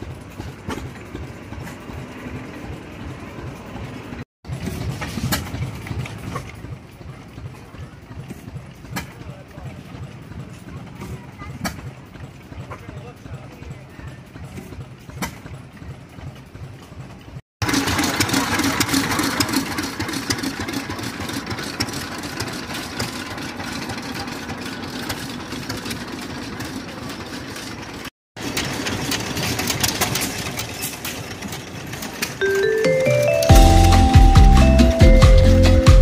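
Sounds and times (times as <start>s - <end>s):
stationary gas engines running: 0.0s - 36.0s
feed grinder clattering: 4.5s - 32.6s.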